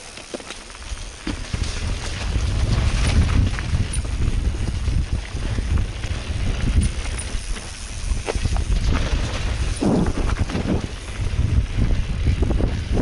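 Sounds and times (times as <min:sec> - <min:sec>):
bike knocks and rattles: 0:00.0 - 0:13.0
bike tyres rolling over dirt: 0:00.0 - 0:13.0
wind buffeting microphone: 0:00.9 - 0:13.0.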